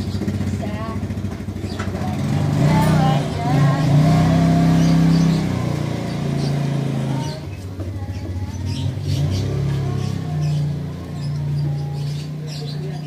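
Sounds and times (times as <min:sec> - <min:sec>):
high bird chirps: 0:04.2 - 0:13.0.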